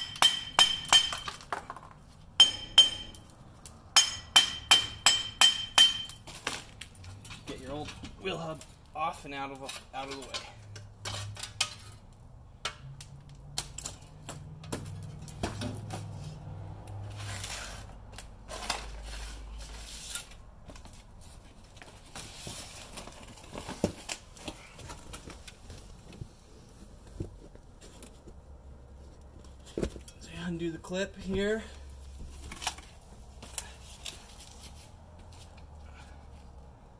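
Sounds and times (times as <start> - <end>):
metal clinks and scrapes: 9.6 - 12.1.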